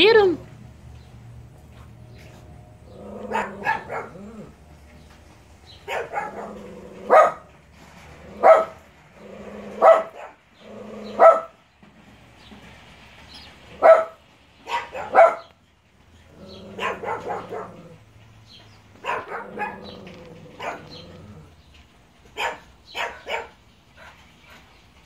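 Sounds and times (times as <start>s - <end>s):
small dog barking: 3.2s - 4.5s, 5.8s - 7.5s, 8.3s - 8.8s, 9.7s - 10.4s, 11.0s - 11.6s, 13.7s - 15.6s, 16.5s - 18.0s, 19.0s - 21.2s, 22.3s - 23.6s.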